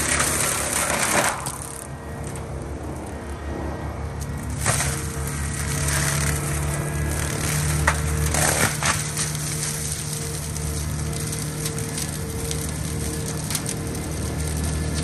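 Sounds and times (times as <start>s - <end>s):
mulcher engine drone: 0.0s - 15.0s
sharp cracks: 4.2s - 15.0s.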